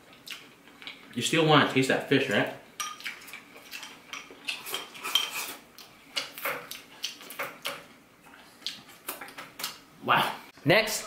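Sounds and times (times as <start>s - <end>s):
close chewing: 0.0s - 1.1s, 2.9s - 9.8s.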